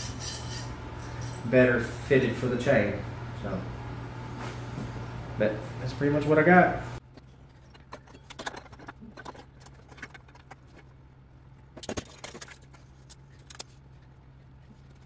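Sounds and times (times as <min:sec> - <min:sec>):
metal clatter: 0:07.0 - 0:11.0, 0:11.6 - 0:15.0.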